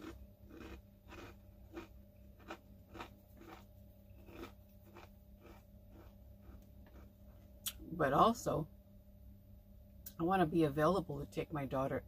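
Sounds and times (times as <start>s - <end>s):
person chewing crunchy snacks: 0.0s - 7.2s
faint steady hum: 0.0s - 12.0s.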